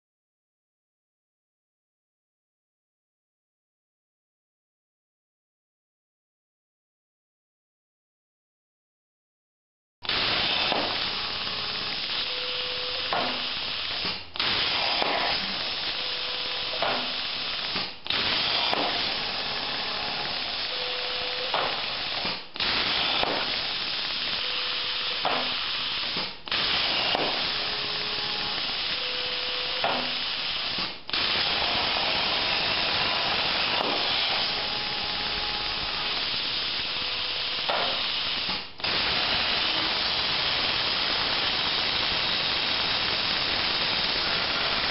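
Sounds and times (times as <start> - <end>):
plasma cutter hissing: 10.0 - 44.9
short whining tones: 24.2 - 30.5.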